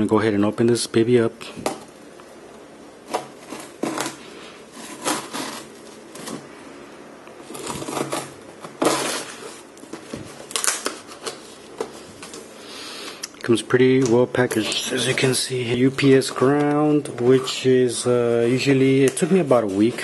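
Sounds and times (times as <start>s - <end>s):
cardboard rustling: 3.0s - 6.5s, 7.4s - 12.6s, 13.8s - 20.0s
knife slicing packing tape: 4.8s - 6.3s, 7.5s - 9.5s.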